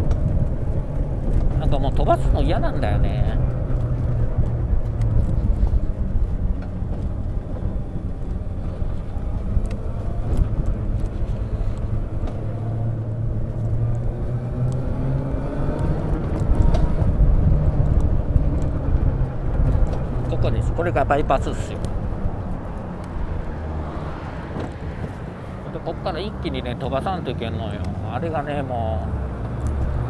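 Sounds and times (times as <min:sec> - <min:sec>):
light rattles and clicks: 0:00.0 - 0:14.8, 0:15.7 - 0:23.5.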